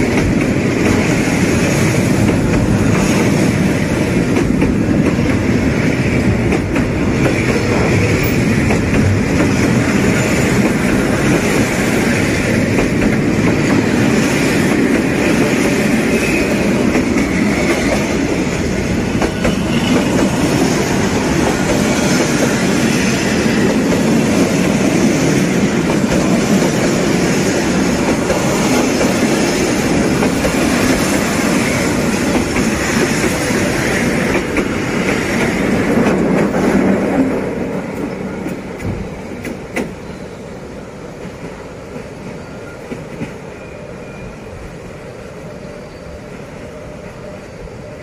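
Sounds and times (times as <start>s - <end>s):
freight train rolling past: 0.0s - 48.0s.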